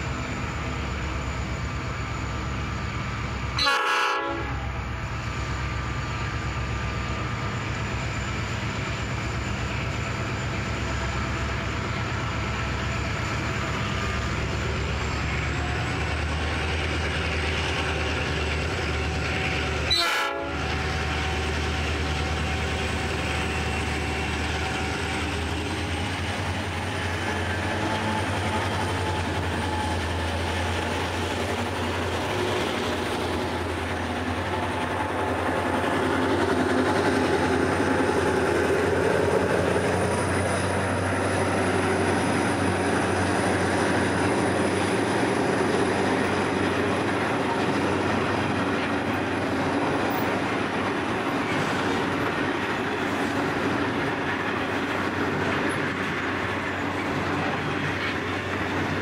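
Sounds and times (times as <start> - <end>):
locomotive engine hum: 0.0 - 59.0
train wheels rolling: 5.0 - 59.0.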